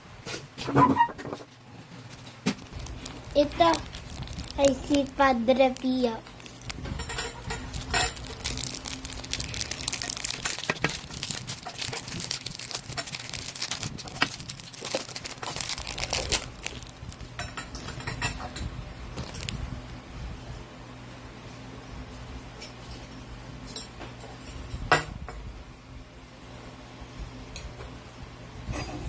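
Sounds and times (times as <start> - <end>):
plastic packaging crinkling: 2.0 - 17.9, 19.1 - 19.6.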